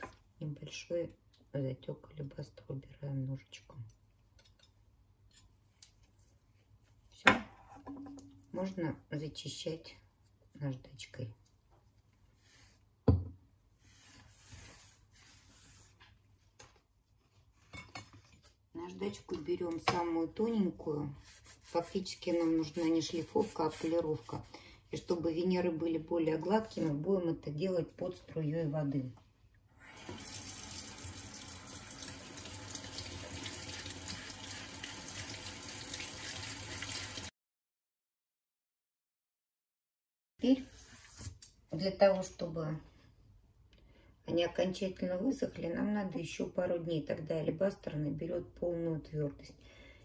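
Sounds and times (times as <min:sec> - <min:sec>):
gloved hands rubbing and rustling: 0:21.2 - 0:24.5
tap water splashing into sink: 0:30.0 - 0:37.3.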